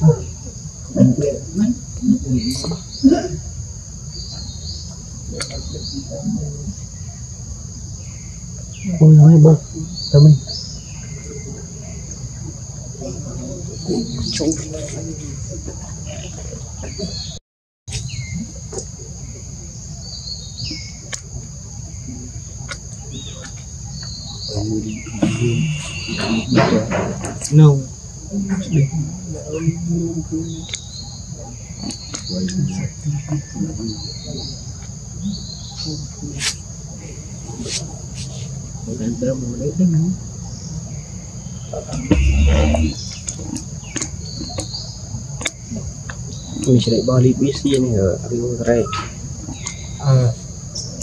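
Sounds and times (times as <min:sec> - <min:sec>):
insects droning: 0:00.0 - 0:51.0
falling chirps: 0:16.1 - 0:27.6, 0:41.3 - 0:45.0
muffled low rumble: 0:42.0 - 0:43.0.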